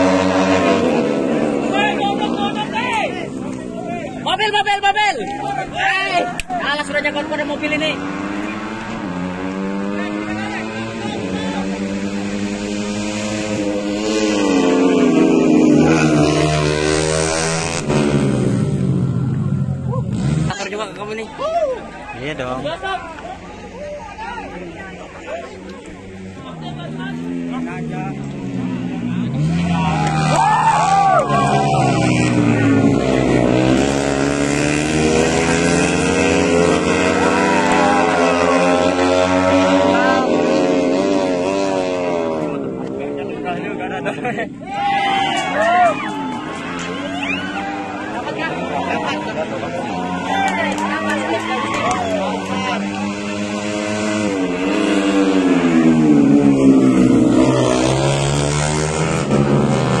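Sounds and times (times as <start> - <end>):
motorcycles racing at high revs: 0.0 - 21.3, 24.1 - 60.0
spectators shouting: 0.6 - 9.0, 21.2 - 27.3, 28.8 - 34.0, 34.9 - 40.7, 44.2 - 58.1.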